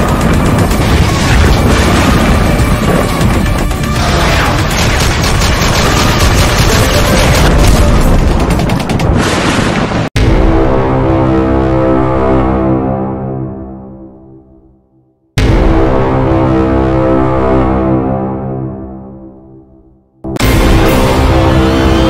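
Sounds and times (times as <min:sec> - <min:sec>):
rapid gunfire: 0:00.0 - 0:09.8
cinematic music: 0:00.0 - 0:22.0.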